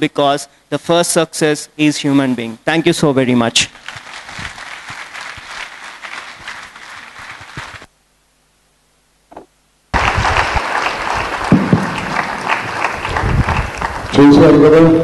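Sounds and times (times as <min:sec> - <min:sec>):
audience applauding: 0:03.8 - 0:07.9, 0:09.9 - 0:15.0.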